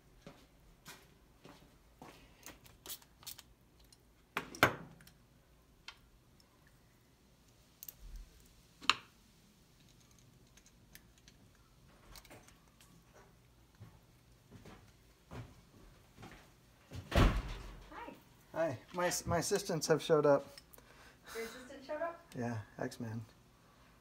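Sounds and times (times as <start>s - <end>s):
metal tools clicking and clinking: 2.6s - 5.2s.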